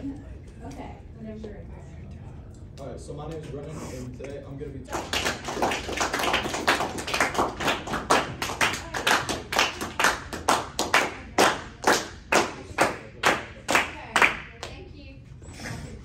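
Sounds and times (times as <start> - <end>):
hands clapping: 4.2 - 14.8.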